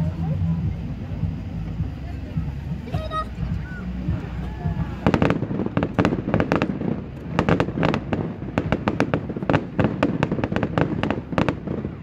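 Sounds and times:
fireworks bangs and crackles: 0:03.6 - 0:12.0.

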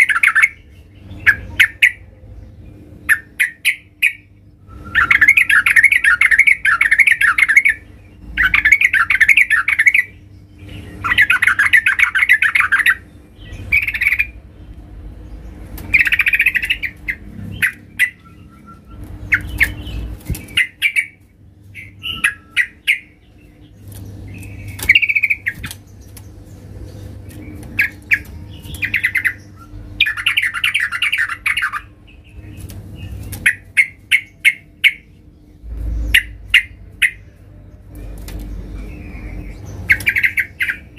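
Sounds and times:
bird chattering song: 0:00.0 - 0:40.9
sharp bird chips: 0:15.5 - 0:37.4, 0:38.0 - 0:40.9.

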